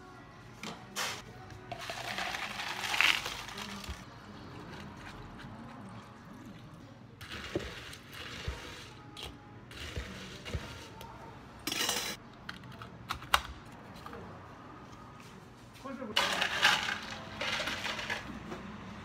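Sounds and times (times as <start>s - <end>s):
ice cubes clinking in cup: 1.7s - 4.0s, 16.2s - 18.2s.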